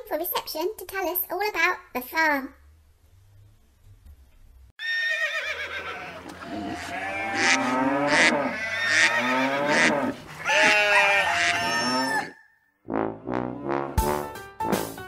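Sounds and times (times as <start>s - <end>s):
sheep bleating: 4.8s - 12.3s
cows mooing: 4.9s - 12.4s.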